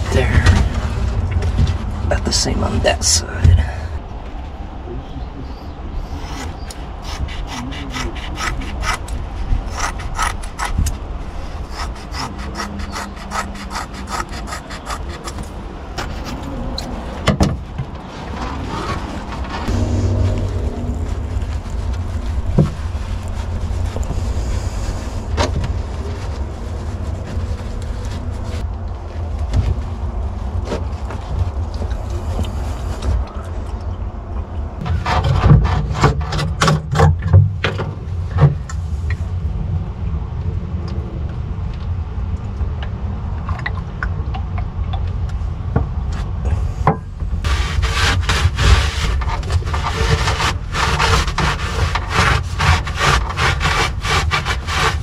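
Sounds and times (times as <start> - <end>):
wind on microphone: 0.0 - 35.8
rag scrubbing wood: 6.2 - 10.8, 11.5 - 16.4, 47.4 - 55.0.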